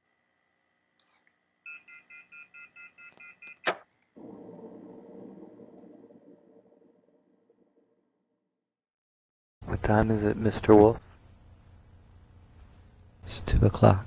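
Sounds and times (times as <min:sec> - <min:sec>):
low hissing rumble: 0:04.2 - 0:07.9, 0:09.6 - 0:14.0.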